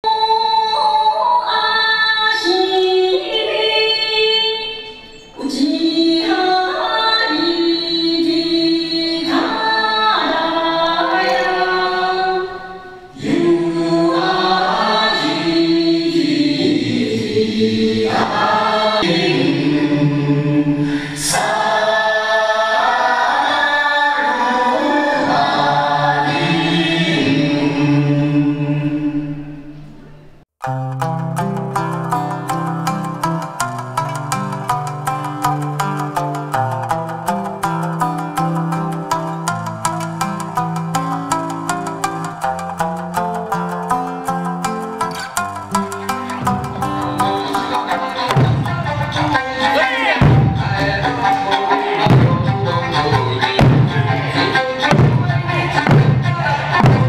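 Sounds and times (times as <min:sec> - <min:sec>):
group of voices singing: 0:02.4 - 0:29.6, 0:46.3 - 0:57.0.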